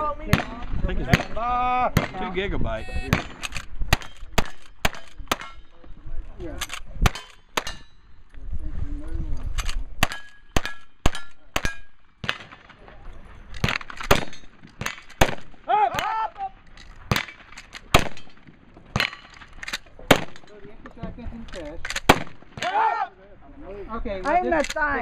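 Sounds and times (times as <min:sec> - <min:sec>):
rifle shots: 0:03.1 - 0:05.6, 0:09.6 - 0:13.0, 0:13.6 - 0:16.2, 0:16.9 - 0:20.5, 0:21.7 - 0:22.8
metallic clangs of steel targets: 0:03.1 - 0:05.8, 0:06.6 - 0:08.1, 0:09.6 - 0:12.8, 0:13.4 - 0:15.4.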